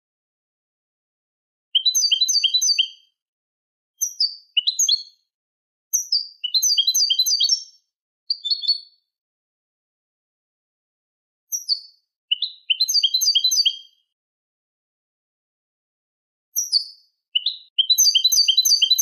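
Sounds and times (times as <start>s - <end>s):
goldfinch twittering song: 1.8s - 3.0s, 4.0s - 5.2s, 6.0s - 8.9s, 11.5s - 14.0s, 16.6s - 19.0s.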